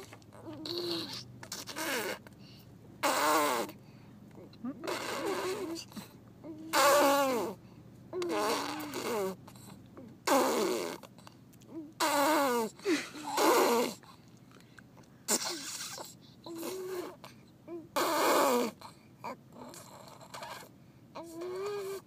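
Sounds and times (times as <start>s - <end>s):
baby blowing raspberries: 0.5s - 2.3s, 3.0s - 3.8s, 4.8s - 7.6s, 8.2s - 9.7s, 10.3s - 11.3s, 12.0s - 14.1s, 15.3s - 17.4s, 18.0s - 19.0s.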